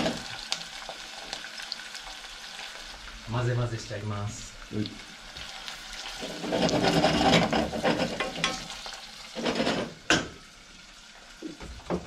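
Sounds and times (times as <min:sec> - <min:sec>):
onions sizzling in a pan: 0:00.0 - 0:12.0
wooden spatula scraping saucepan: 0:06.2 - 0:10.0.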